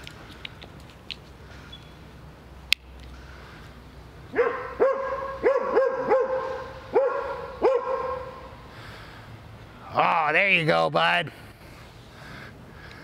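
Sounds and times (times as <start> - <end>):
dog barking: 4.4 - 8.4.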